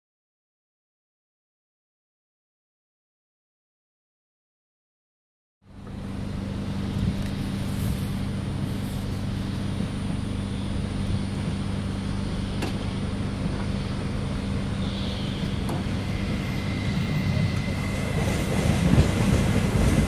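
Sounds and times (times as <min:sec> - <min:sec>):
electric train hum: 0:05.6 - 0:20.0.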